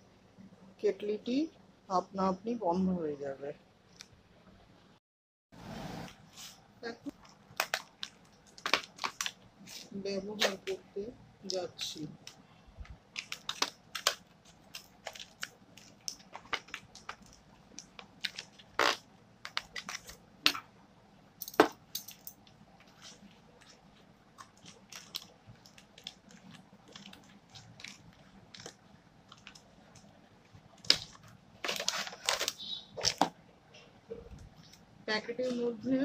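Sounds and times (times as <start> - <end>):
paper crinkling: 6.1 - 10.8, 11.9 - 20.6, 22.4 - 33.3.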